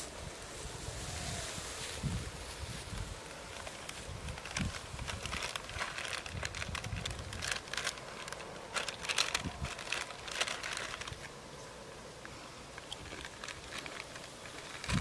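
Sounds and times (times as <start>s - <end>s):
plastic chip packet crinkling: 3.5s - 11.3s, 12.8s - 15.0s.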